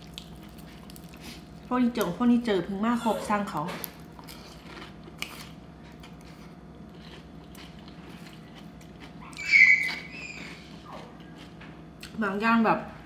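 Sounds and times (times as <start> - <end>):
crispy pork crackling crunch: 0.0 - 2.2, 3.5 - 12.2
mouth chewing noodles: 3.0 - 12.2.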